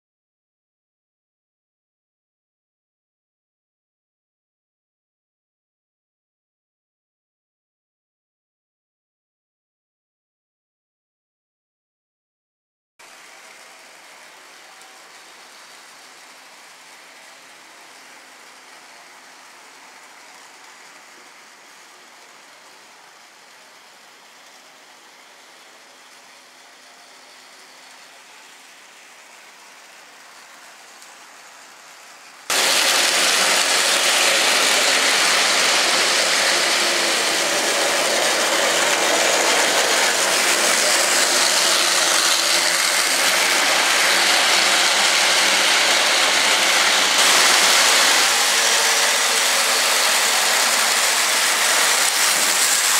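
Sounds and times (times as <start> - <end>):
model trains running on track: 13.0 - 52.9.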